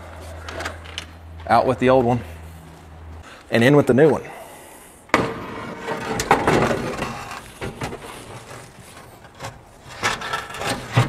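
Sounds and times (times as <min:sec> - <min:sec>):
metal scraping on metal: 0:05.3 - 0:11.0.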